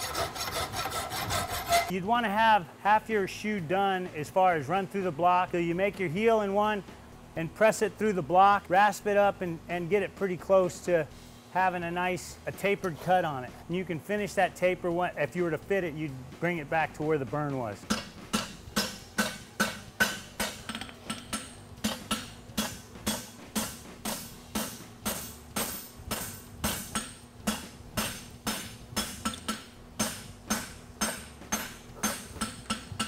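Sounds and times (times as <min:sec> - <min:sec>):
hammer striking metal on anvil: 0:17.8 - 0:33.0.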